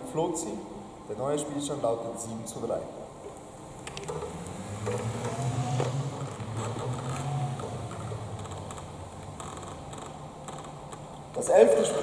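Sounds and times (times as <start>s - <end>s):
light clicks and creaks: 3.2s - 12.0s
wheelchair motors humming: 3.7s - 11.1s.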